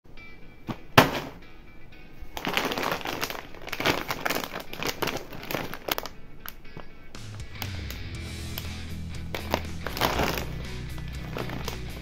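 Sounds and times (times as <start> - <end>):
background music: 0.1 - 12.0
chip packet crinkling: 2.3 - 7.8, 8.5 - 12.0.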